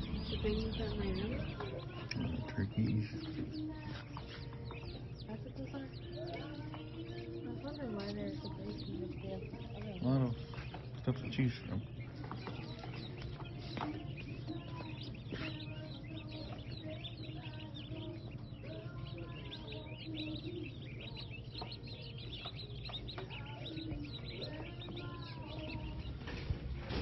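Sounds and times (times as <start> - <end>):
baby chicks peeping: 0.0 - 27.0.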